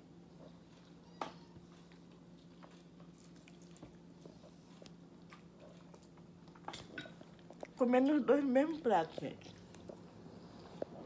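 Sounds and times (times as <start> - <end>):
steady low hum: 0.0 - 11.0
quiet chewing: 0.3 - 7.8, 9.1 - 11.0.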